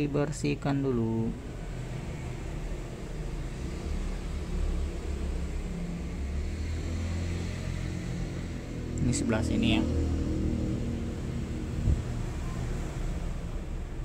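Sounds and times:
low background rumble: 0:08.2 - 0:14.0.

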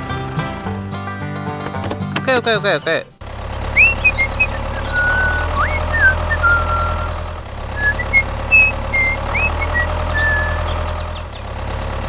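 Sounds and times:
tractor engine idling: 0:00.0 - 0:12.0
high whistled chirps: 0:03.8 - 0:11.2.

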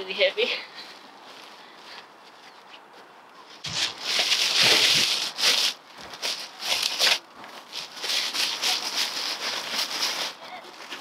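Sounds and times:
plastic sack rustling and crinkling: 0:03.6 - 0:11.0.

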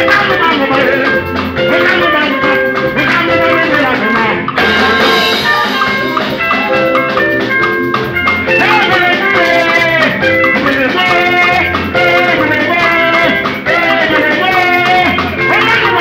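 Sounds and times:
bass line: 0:00.0 - 0:16.0
congas: 0:00.0 - 0:16.0
drum kit steady beat: 0:00.0 - 0:16.0
electric guitar lines: 0:00.0 - 0:16.0
keyboard: 0:00.0 - 0:16.0.

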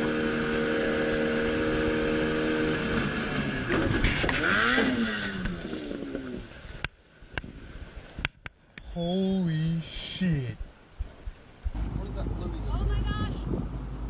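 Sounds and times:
outboard motor running: 0:00.0 - 0:06.7, 0:11.7 - 0:14.0.

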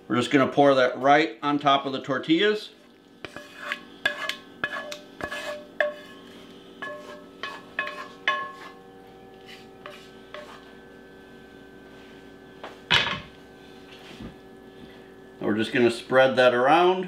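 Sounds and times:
faint steady hum: 0:00.0 - 0:17.0
wooden spoon clinking on skillet: 0:06.8 - 0:08.8.

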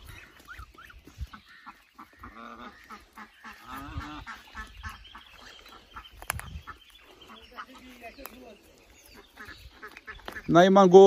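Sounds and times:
goose honking: 0:00.0 - 0:08.2
goslings peeping: 0:00.0 - 0:11.0.

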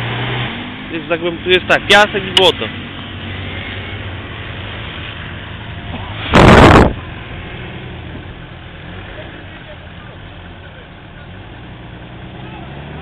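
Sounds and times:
car engine running low: 0:00.7 - 0:13.0
loud rush of noise: 0:05.2 - 0:07.7.

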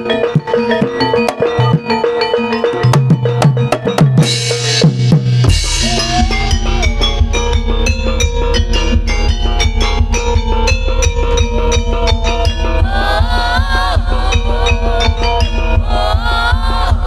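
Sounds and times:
metallophone tones: 0:00.0 - 0:17.0
quick drum strokes: 0:03.4 - 0:17.0
woman singing: 0:05.8 - 0:07.0, 0:12.7 - 0:17.0.

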